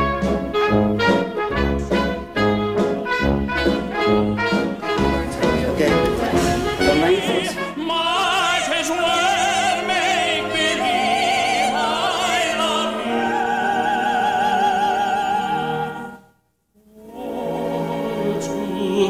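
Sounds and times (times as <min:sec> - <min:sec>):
orchestra playing: 0:00.0 - 0:16.2
operatic duet singing: 0:04.9 - 0:16.2, 0:16.8 - 0:19.0.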